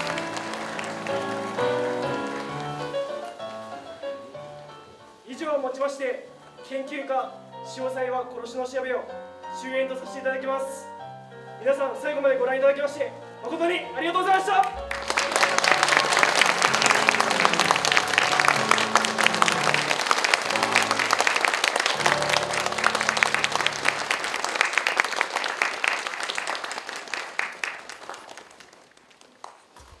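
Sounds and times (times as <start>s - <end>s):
audience applause: 0.0s - 3.8s, 14.7s - 30.0s
background music: 0.0s - 25.6s.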